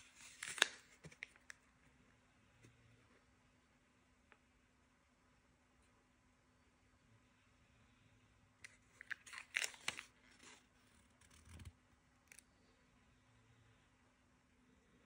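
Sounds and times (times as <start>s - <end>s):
plastic blister pack crinkling: 0.1s - 1.6s, 8.9s - 10.6s.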